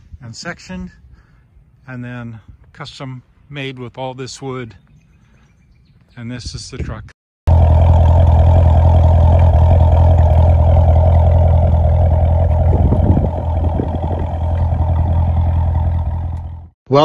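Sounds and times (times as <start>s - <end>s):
car exhaust idling: 7.5s - 16.8s.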